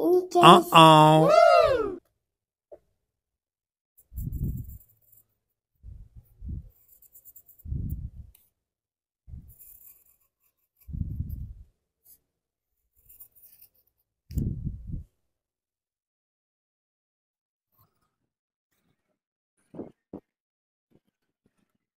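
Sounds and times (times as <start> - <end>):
pencil scratching on paper: 6.8 - 7.6, 9.5 - 10.9, 13.0 - 13.9.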